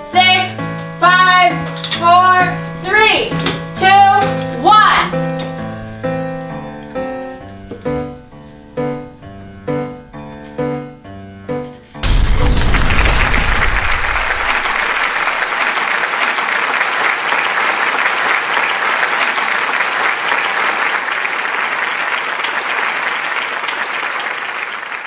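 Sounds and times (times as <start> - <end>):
deep boom: 12.0 - 15.4
crowd applause: 12.7 - 25.0.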